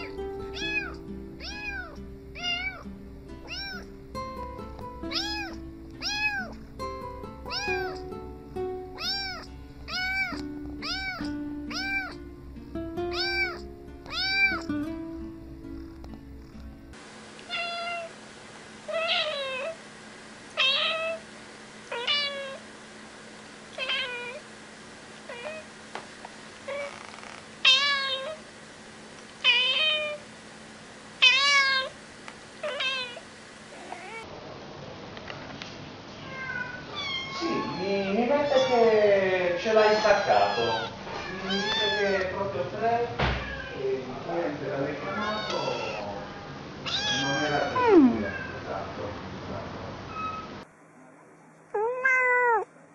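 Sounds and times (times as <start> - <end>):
cat meowing loudly: 0.0 - 2.8, 3.4 - 3.9, 5.1 - 6.6, 7.5 - 8.0, 9.0 - 12.2, 13.1 - 14.7, 17.5 - 18.1, 18.9 - 19.8, 20.6 - 21.2, 21.9 - 22.6, 23.8 - 24.4, 26.7 - 28.4, 29.4 - 30.2, 31.2 - 32.0, 32.6 - 33.2, 36.2 - 39.0, 39.6 - 42.4, 43.2 - 43.9, 44.9 - 48.6, 51.7 - 52.7
cat meowing: 0.0 - 3.9, 5.1 - 6.7, 7.5 - 8.1, 8.9 - 12.2, 13.1 - 14.8, 17.5 - 18.1, 18.9 - 19.8, 20.6 - 21.2, 21.9 - 22.6, 23.8 - 24.4, 25.3 - 25.7, 26.7 - 28.4, 29.4 - 30.2, 31.2 - 32.0, 32.6 - 33.2, 33.8 - 34.3, 36.2 - 39.0, 39.6 - 42.4, 43.3 - 43.9, 44.9 - 48.6, 51.7 - 52.7
music playing: 0.0 - 17.0.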